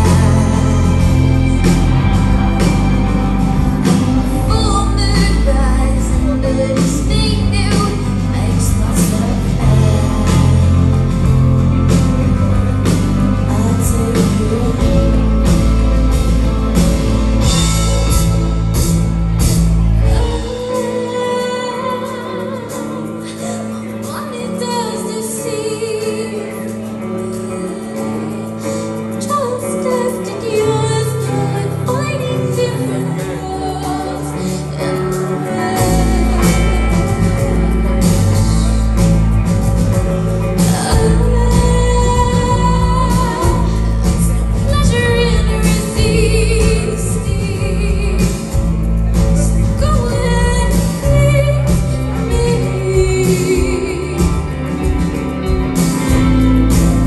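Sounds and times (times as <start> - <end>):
live rock band playing: 0.0 - 57.0
woman singing lead: 0.0 - 57.0.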